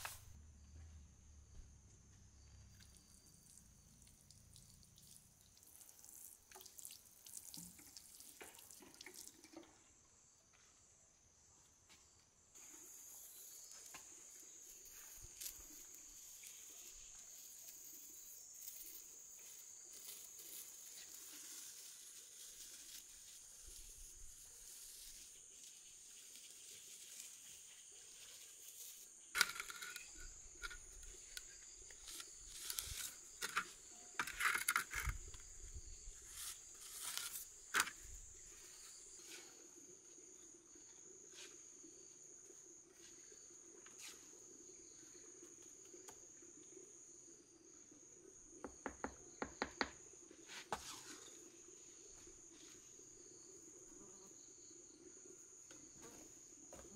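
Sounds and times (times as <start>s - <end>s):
insects chirring: 0.0s - 56.9s
scraping on bricks: 31.9s - 35.5s.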